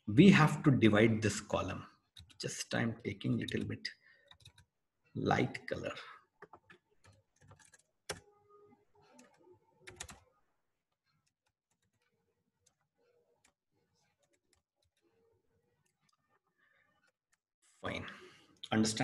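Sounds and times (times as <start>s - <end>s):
keyboard typing: 3.4s - 4.7s, 6.4s - 8.3s, 9.1s - 10.3s.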